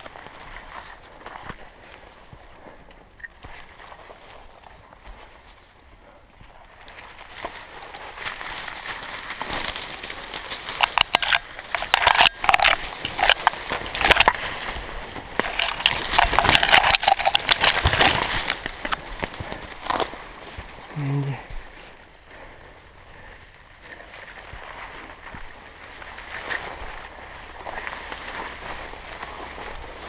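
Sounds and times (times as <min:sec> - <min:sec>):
branches scraping against clothing: 0:00.0 - 0:22.1, 0:23.8 - 0:30.0
twigs cracking: 0:06.5 - 0:22.0, 0:23.8 - 0:30.0.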